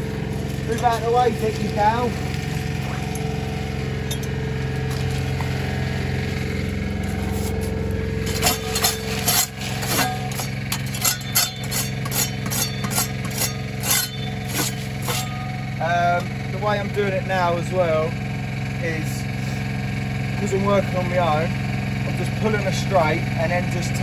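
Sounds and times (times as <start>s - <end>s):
engine humming: 0.0s - 24.0s
trowel scraping and tapping concrete: 8.3s - 15.3s.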